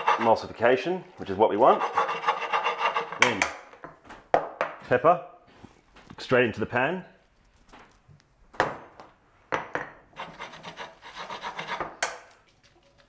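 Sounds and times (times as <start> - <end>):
utensil scraping metal pan: 0.0 - 3.4, 10.2 - 12.0.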